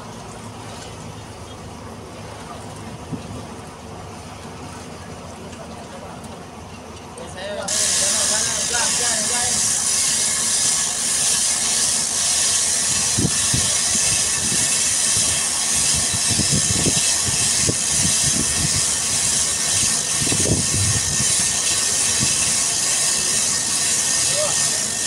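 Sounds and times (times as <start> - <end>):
water at shoreline: 0.0 - 25.0
wind: 0.0 - 25.0.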